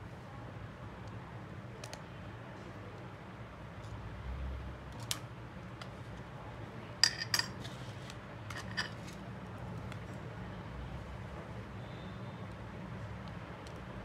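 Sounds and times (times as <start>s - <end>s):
metal tools clinking: 7.0s - 7.6s, 8.5s - 9.1s.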